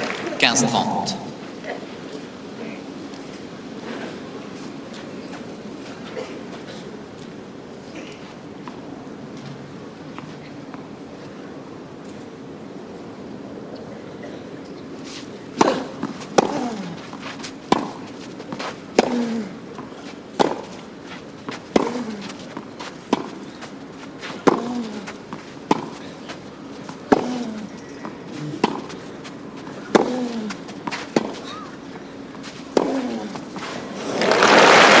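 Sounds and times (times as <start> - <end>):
tennis ball hit by rackets: 17.7 - 19.4, 20.4 - 20.8, 21.5 - 22.4, 24.2 - 26.0, 28.6 - 29.0, 29.8 - 31.5, 32.7 - 33.7.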